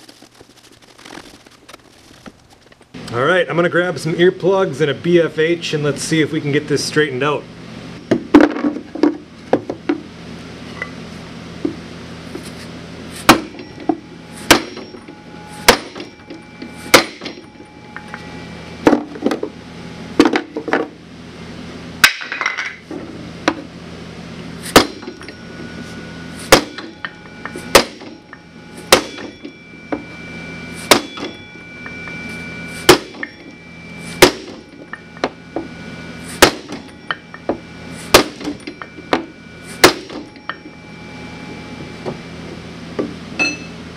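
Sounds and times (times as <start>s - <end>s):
metal ringing: 13.3s - 21.0s, 24.7s - 43.9s.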